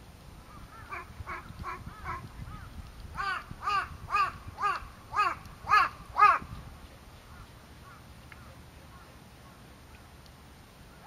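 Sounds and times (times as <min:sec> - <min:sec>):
crow cawing: 0:03.2 - 0:06.5.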